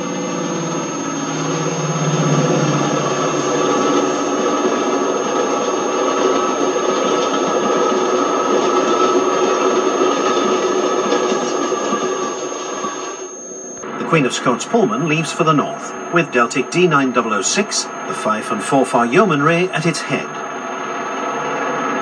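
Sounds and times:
diesel locomotive engine: 0.0 - 22.0
thin high whine: 0.0 - 22.0.

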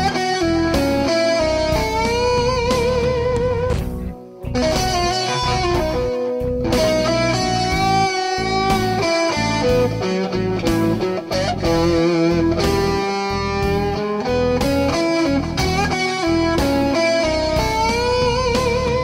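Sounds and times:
backing track: 0.0 - 19.0
electric guitar bending notes: 0.0 - 19.0.

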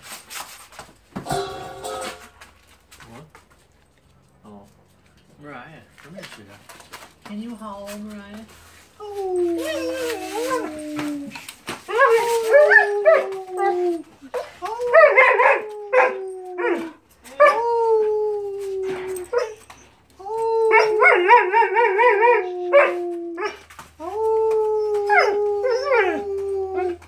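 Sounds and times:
dog howling: 9.3 - 19.6, 20.2 - 27.0.

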